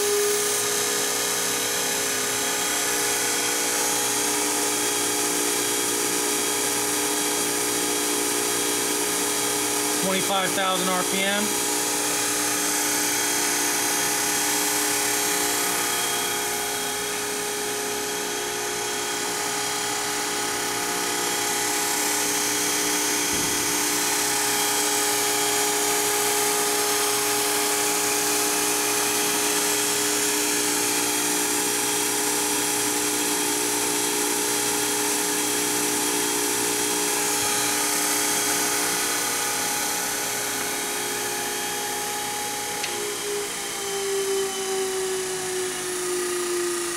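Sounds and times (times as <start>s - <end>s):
grinder high-pitched whine: 0.0s - 46.9s.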